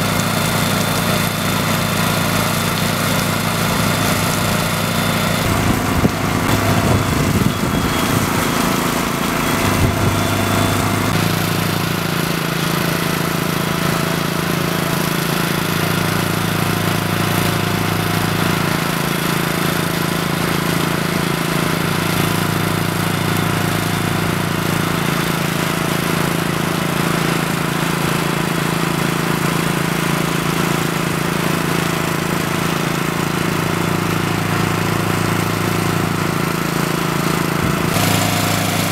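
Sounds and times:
engine running steadily: 0.0 - 38.9.

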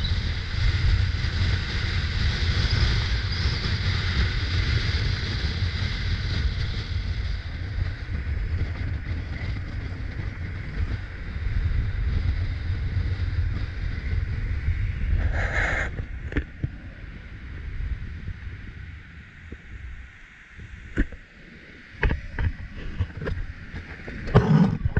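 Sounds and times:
low road rumble: 0.0 - 24.9
wind buffeting microphone: 0.0 - 24.9
burst of noise: 15.2 - 16.6.

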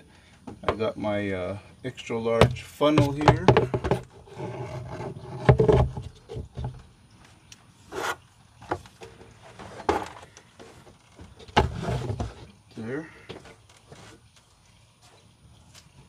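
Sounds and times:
plastic funnel knocking and scraping: 2.4 - 6.9, 7.9 - 12.5.

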